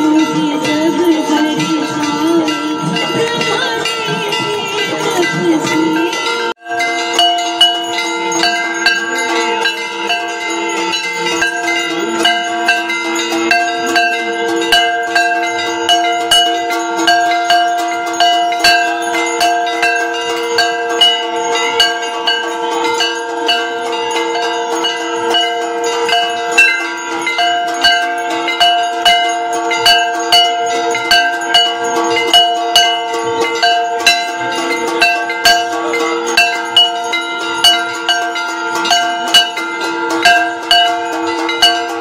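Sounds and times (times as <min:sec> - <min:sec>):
bells ringing: 0:00.0 - 0:42.0
sharp metallic clangs: 0:00.0 - 0:42.0.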